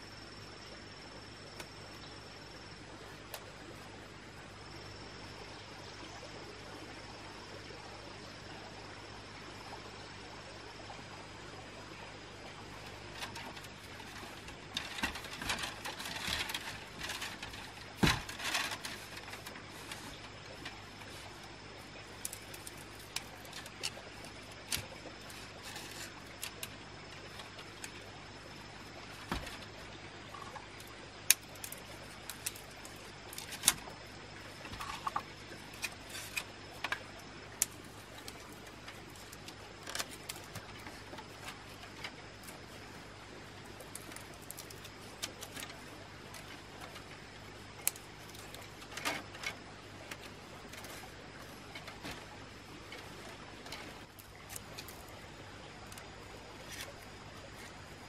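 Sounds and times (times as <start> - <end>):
steady low hum: 0.0 - 58.0
bamboo strips clicking and rattling: 12.8 - 28.1, 29.0 - 58.0.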